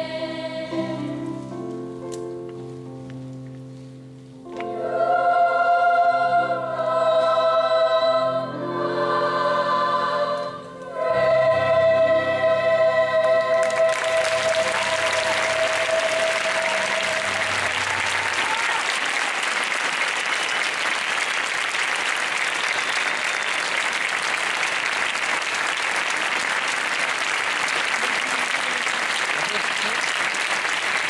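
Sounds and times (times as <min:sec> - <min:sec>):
choir holding final note: 0:04.6 - 0:19.6
audience applauding: 0:13.4 - 0:31.0.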